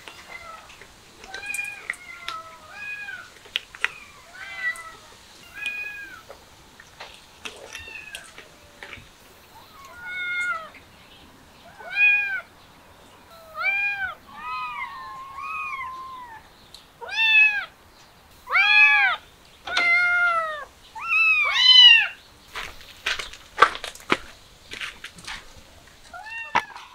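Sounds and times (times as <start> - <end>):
kittens meowing: 0.1 - 6.3, 7.5 - 10.8, 11.6 - 12.5, 13.3 - 17.7, 18.5 - 22.2, 26.1 - 26.9.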